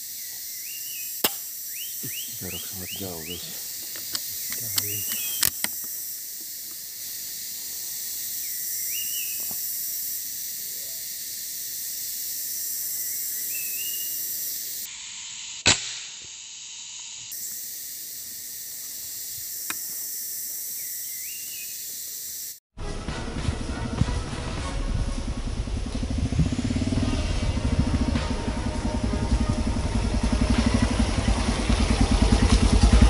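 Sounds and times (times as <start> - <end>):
insect chorus: 0.0 - 22.7, 24.6 - 33.0
air rifle shot: 1.2 - 1.5, 15.6 - 16.3
rising bird call: 13.2 - 14.3
music: 22.8 - 26.0, 27.2 - 31.4
motorcycle engine: 22.8 - 33.0.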